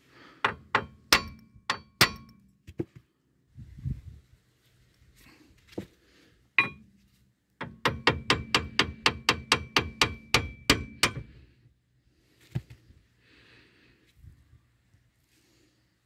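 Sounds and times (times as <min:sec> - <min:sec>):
hammer striking steel: 0:00.4 - 0:02.4, 0:06.6 - 0:06.9, 0:07.6 - 0:11.4.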